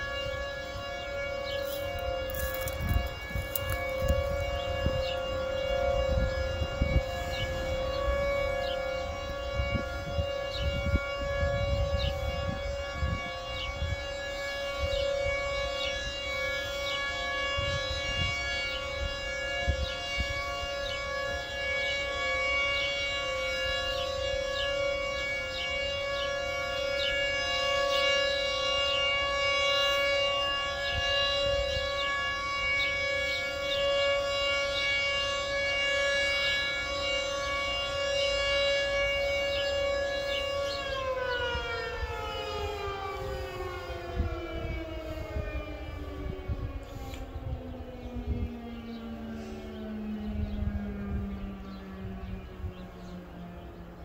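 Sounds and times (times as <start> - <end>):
distant sirens: 0.0 - 54.0
tornado warning siren steady tone: 0.0 - 54.0.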